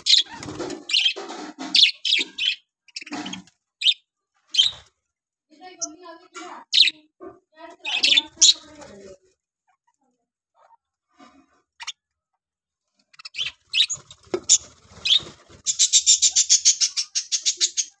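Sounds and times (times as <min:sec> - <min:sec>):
budgerigars chirping: 0:00.1 - 0:01.2, 0:01.8 - 0:04.8, 0:07.9 - 0:08.7, 0:13.1 - 0:18.0.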